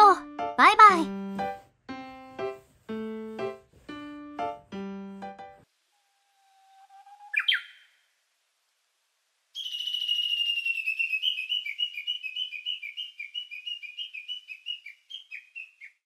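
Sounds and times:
high whistle falling: 5.9 - 7.9, 9.6 - 12.1
quick falling bird-like chirps: 6.8 - 7.9, 9.6 - 16.0.

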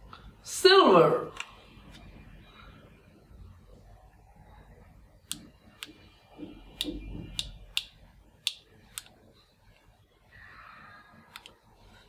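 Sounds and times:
toy pistol clicking: 7.4 - 9.1.

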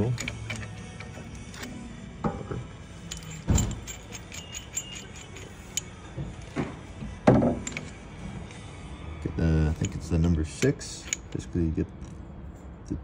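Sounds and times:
metal clinking and knocking: 0.0 - 8.2, 9.7 - 11.4.

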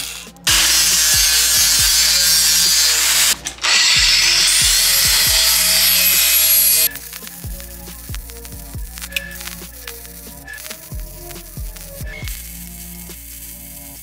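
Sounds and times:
angle grinder grinding steel: 0.0 - 14.0.

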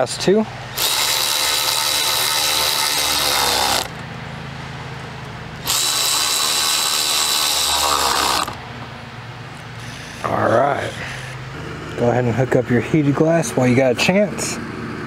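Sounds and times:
power driver whining: 0.0 - 4.1, 5.6 - 8.9.

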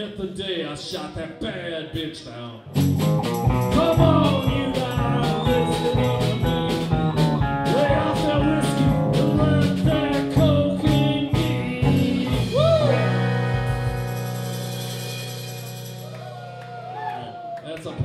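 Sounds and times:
electric guitars: 2.7 - 17.0
live band playing rock: 2.7 - 17.0
drum kit beat: 2.8 - 16.8.

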